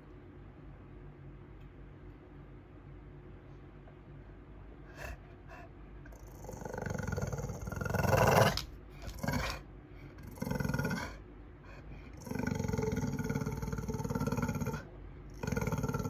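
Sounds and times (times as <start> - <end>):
dog growling and huffing: 4.9 - 11.2, 11.9 - 16.0.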